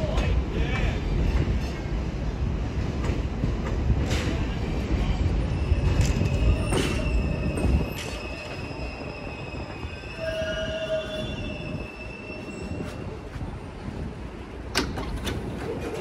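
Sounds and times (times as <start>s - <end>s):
subway train rumbling: 0.0s - 16.0s
train wheels squealing: 5.0s - 13.4s.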